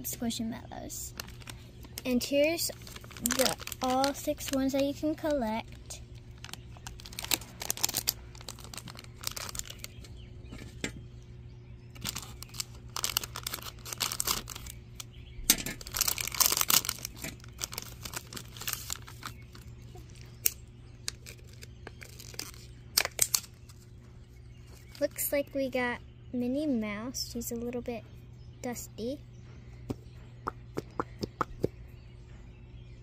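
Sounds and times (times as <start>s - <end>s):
plastic packet crackling: 0.9s - 10.2s, 11.9s - 23.8s
packet ripping open: 1.1s - 4.7s, 6.2s - 10.1s, 12.0s - 15.1s, 15.7s - 23.8s
plastic wrap crackles: 1.1s - 10.1s, 11.9s - 23.8s.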